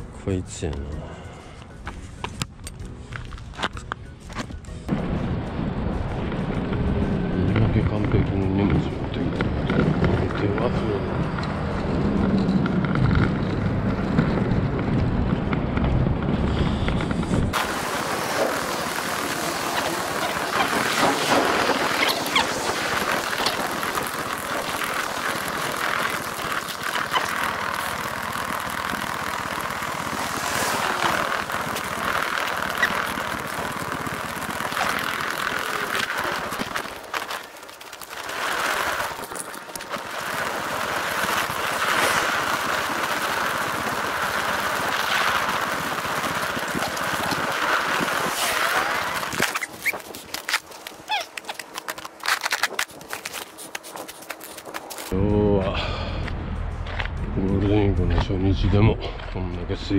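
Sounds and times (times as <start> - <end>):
hand cart rattling over paving: 17.5 - 55.1.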